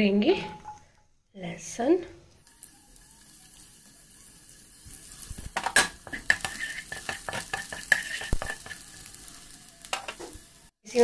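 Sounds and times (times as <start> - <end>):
garlic sizzling in oil: 2.4 - 11.0
wooden spatula scraping a pan: 5.0 - 10.4.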